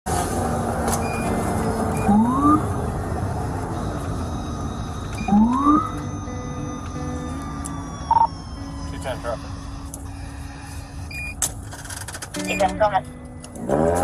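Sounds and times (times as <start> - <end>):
car running noise inside cabin: 0.1 - 14.0
police siren whoops: 4.4 - 6.4.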